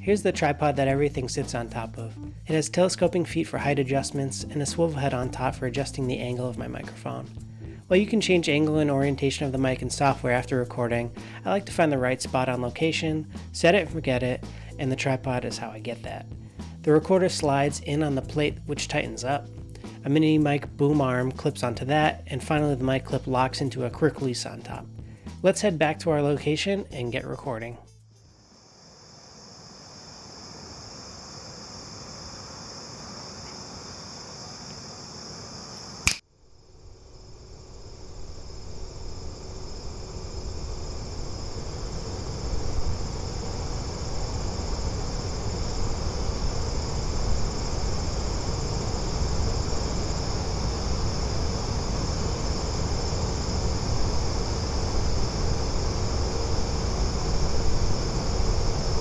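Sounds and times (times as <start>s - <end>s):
crickets chirring: 28.1s - 59.0s
sharp click: 36.0s - 36.2s
low rumble: 37.9s - 59.0s.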